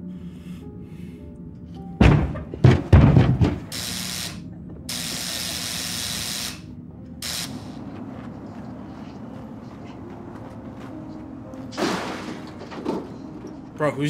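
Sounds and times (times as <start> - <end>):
heavy knocking thumps: 2.0 - 3.8.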